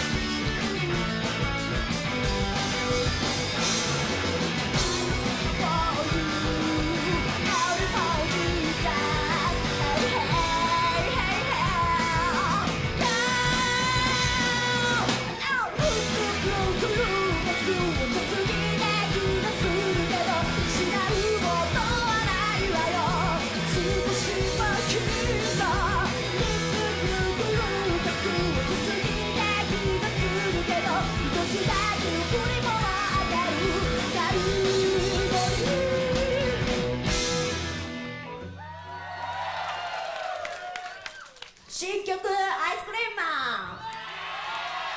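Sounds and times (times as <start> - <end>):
punk rock band playing: 0.0 - 39.4
woman singing and shouting: 5.6 - 36.6.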